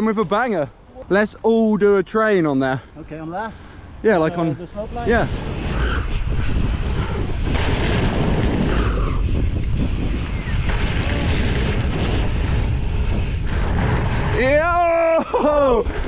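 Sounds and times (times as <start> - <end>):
wind buffeting microphone: 3.8 - 16.0.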